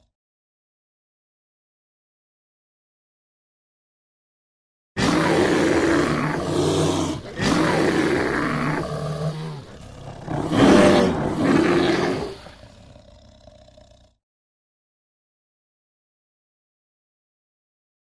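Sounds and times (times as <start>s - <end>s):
bear roaring: 5.0s - 14.2s.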